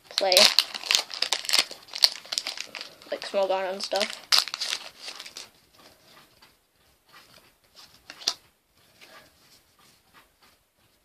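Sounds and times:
foil wrapper crinkling: 0.0s - 5.6s.

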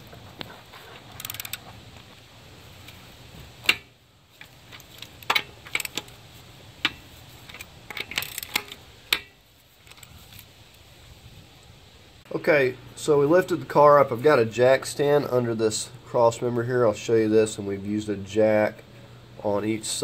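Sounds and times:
metal socket clicking on lug nuts: 3.6s - 6.2s, 6.8s - 9.3s.

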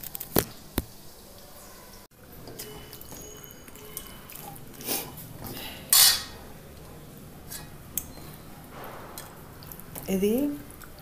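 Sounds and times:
steel spoon scraping a pan: 5.9s - 6.4s.

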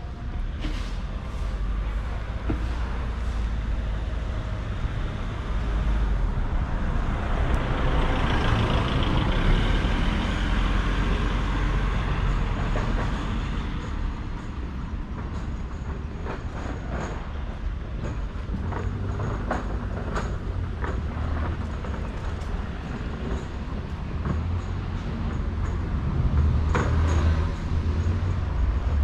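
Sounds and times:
city street traffic: 0.0s - 29.0s
large vehicle passing: 0.8s - 14.2s.

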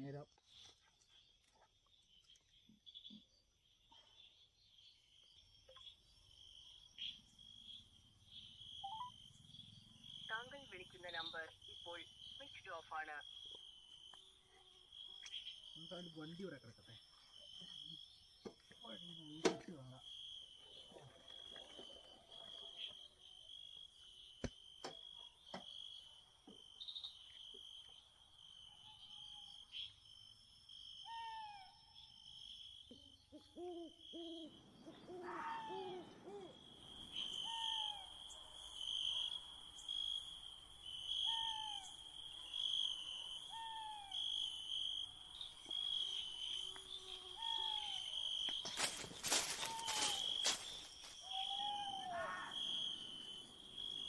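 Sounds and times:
crickets trilling: 0.0s - 54.0s
owl hooting: 31.0s - 31.8s, 32.9s - 38.4s, 41.1s - 42.0s, 42.6s - 44.6s, 46.5s - 53.1s.

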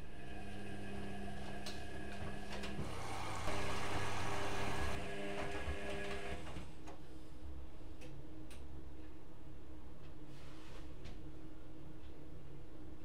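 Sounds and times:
washing machine motor hum: 0.0s - 6.8s.

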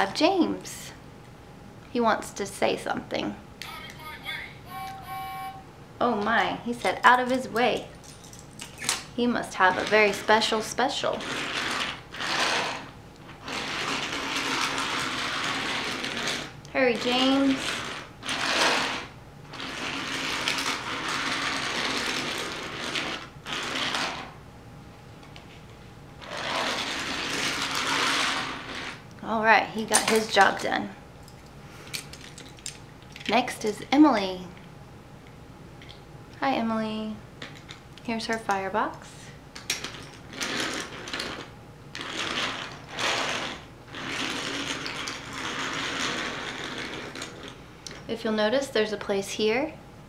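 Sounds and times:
toy train rolling on track: 11.2s - 24.2s, 26.2s - 29.0s, 40.4s - 47.5s.

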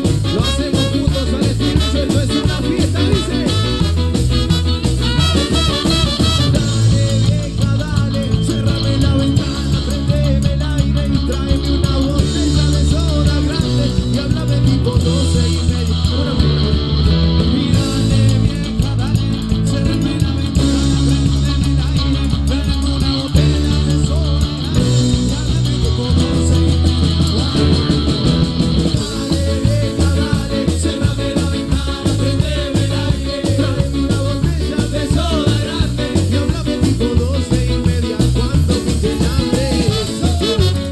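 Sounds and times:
trumpets and saxophone: 0.0s - 7.2s, 39.1s - 40.9s
drums: 0.0s - 40.9s
electric guitars: 0.0s - 40.9s
keyboard: 0.0s - 40.9s
person singing: 0.0s - 40.9s
pulsing bass: 0.0s - 40.9s.

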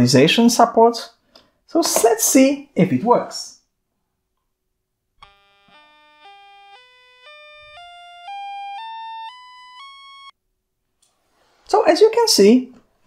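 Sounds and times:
rising buzzy computer beeps: 5.2s - 10.3s.

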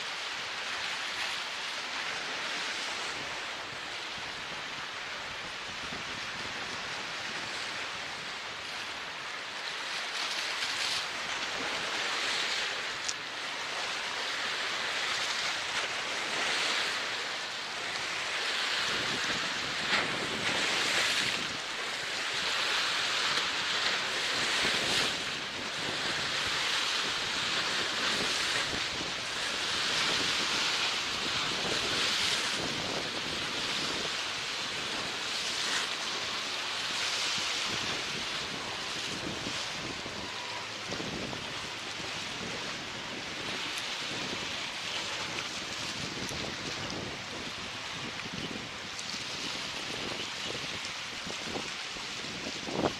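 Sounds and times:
sea water rushing and waves washing: 0.0s - 52.9s
wind buffeting microphone: 23.5s - 35.8s, 37.2s - 52.9s.

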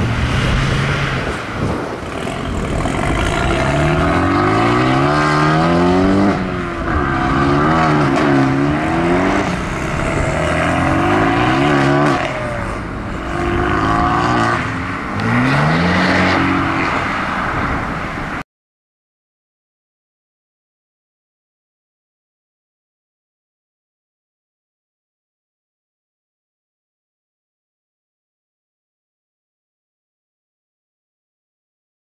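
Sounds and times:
car engines revving: 0.0s - 18.4s.

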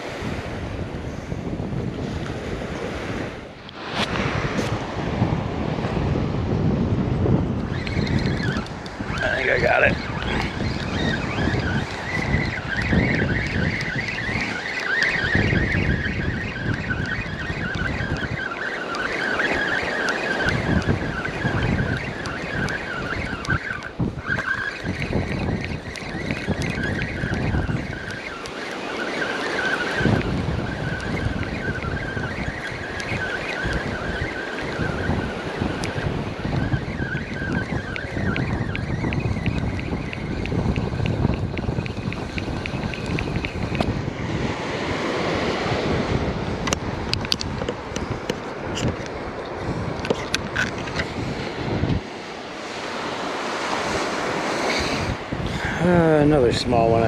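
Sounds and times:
wind buffeting microphone: 0.0s - 57.0s
fishing reel whirring: 7.4s - 57.0s.

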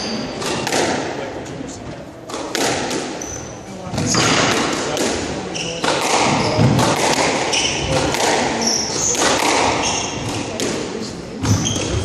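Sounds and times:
squash ball knocks: 0.4s - 1.2s, 2.3s - 3.2s, 3.8s - 12.0s.

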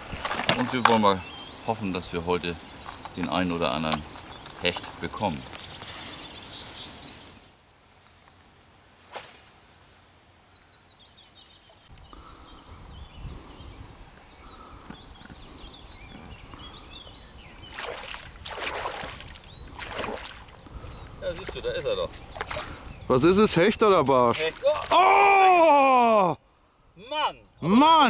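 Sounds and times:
small birds chirping: 0.0s - 28.0s
fish splash: 17.7s - 20.5s.

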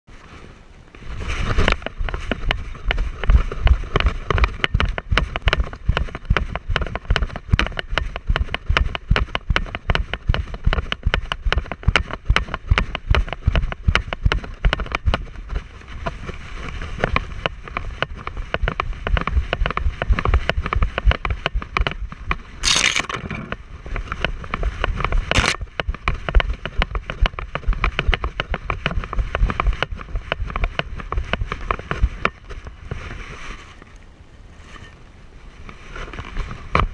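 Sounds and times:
camera mount thumping and rattling: 22.6s - 23.6s, 25.3s - 25.6s.

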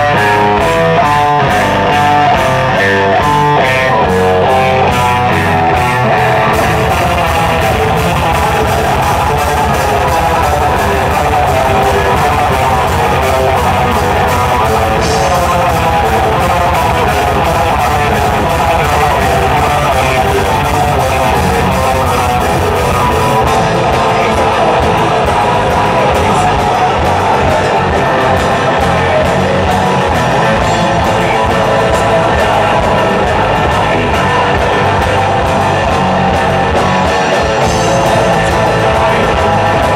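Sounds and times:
distorted electric guitars: 0.0s - 39.9s
drum kit: 0.0s - 39.9s.

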